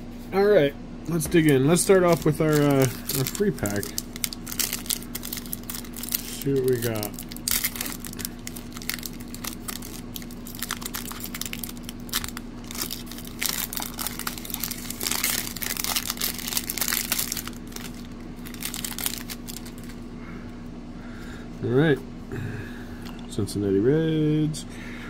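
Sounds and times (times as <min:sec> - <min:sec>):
foil wrapper crackling: 0:01.4 - 0:20.0.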